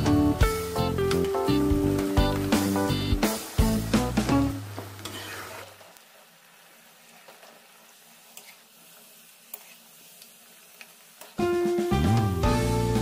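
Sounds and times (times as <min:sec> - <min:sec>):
background music: 0:00.0 - 0:04.8, 0:11.4 - 0:13.0
potatoes sizzling in hot oil: 0:00.0 - 0:13.0.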